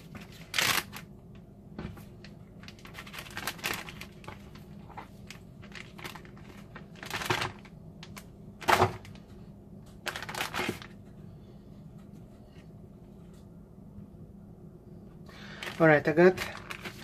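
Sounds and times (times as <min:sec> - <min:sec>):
plastic bag rustling and crinkling: 0:00.0 - 0:01.1, 0:01.8 - 0:09.4, 0:10.0 - 0:11.1, 0:15.4 - 0:17.0.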